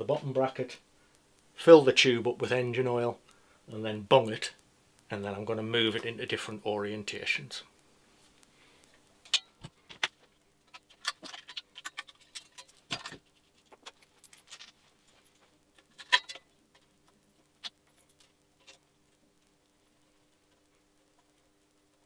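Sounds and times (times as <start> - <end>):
faint steady hum: 0.0 - 22.0
small metal parts clinking: 10.7 - 16.9.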